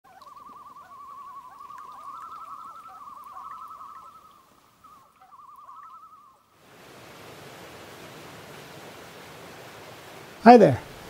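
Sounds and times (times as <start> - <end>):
loon tremolo call: 0.1 - 6.5
steady hiss: 6.4 - 11.0.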